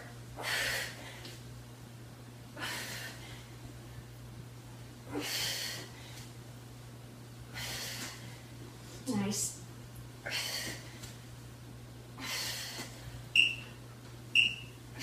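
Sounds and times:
woman breathing forcefully: 0.4s - 1.4s, 2.5s - 3.7s, 5.0s - 6.3s, 7.4s - 8.6s, 10.2s - 11.1s, 12.1s - 13.2s.

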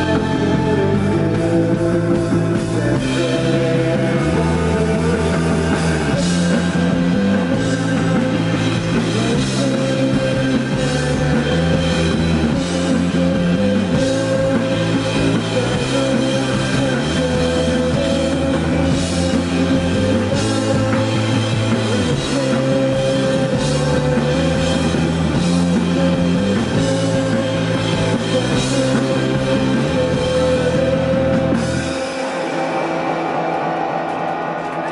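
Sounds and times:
bass line: 0.0s - 34.0s
live rock band: 0.0s - 34.9s.

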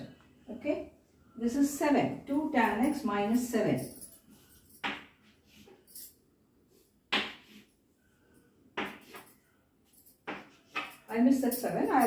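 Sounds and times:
chalk on blackboard: 6.7s - 7.7s, 8.8s - 9.3s.

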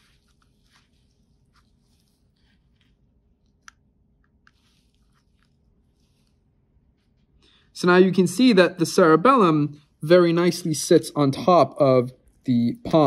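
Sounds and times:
gloved fingers handling tissue: 0.0s - 7.6s.

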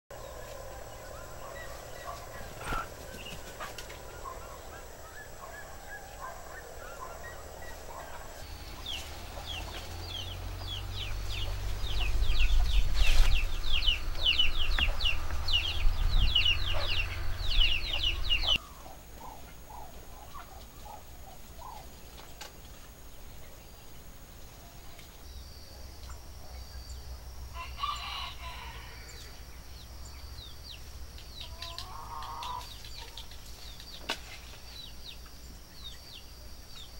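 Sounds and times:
birds calling: 0.1s - 36.9s
low rumble: 0.2s - 18.8s.

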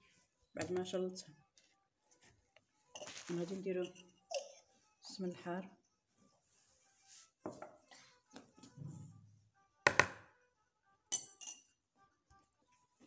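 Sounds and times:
metal spoon knocking on plastic bowl: 9.8s - 10.3s.

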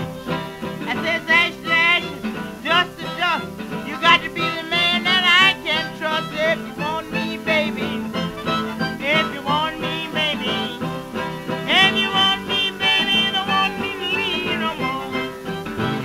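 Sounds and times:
blues guitar music: 0.0s - 16.0s.

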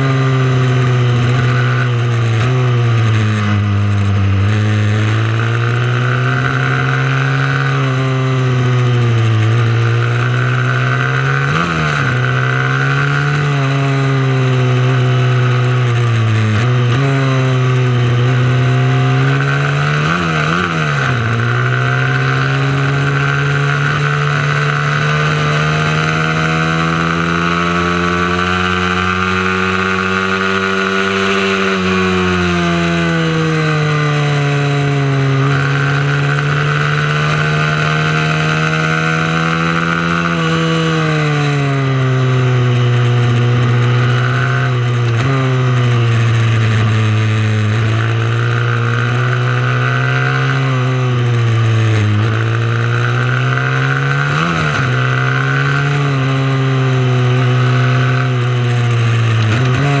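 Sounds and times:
mini motorbike engine revving: 0.0s - 60.0s.

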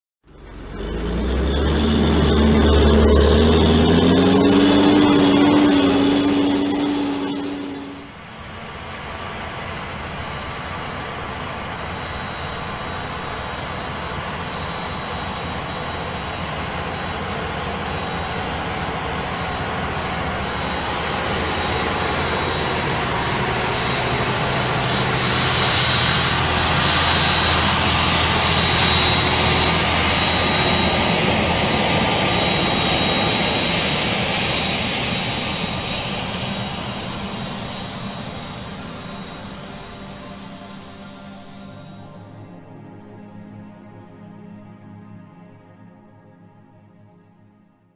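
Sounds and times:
tractor diesel engine under load: 0.2s - 8.3s, 13.9s - 41.6s
high whistle: 3.5s - 8.8s.

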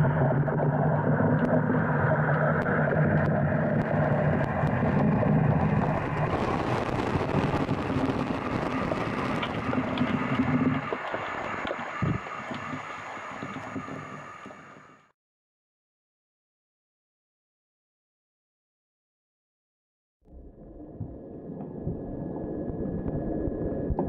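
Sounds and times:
low hum: 0.0s - 14.8s, 20.3s - 24.0s
underwater rumble of moving water: 0.0s - 14.9s, 20.3s - 24.0s.

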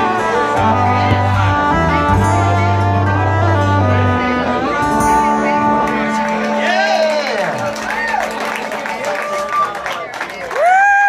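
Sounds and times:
fiddle bowing sustained notes: 0.0s - 8.7s
acoustic and electric guitars: 0.0s - 9.9s.

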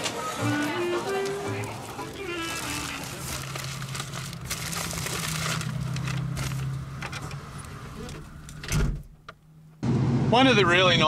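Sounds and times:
plastic bags rustling: 0.0s - 7.7s.

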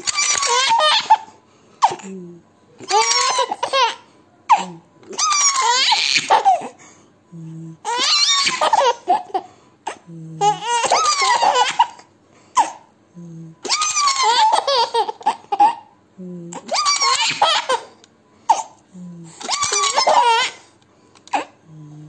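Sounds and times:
baby giggling: 0.0s - 2.0s, 2.8s - 6.7s, 7.8s - 12.8s, 13.6s - 15.9s, 16.6s - 18.0s, 19.4s - 20.6s.

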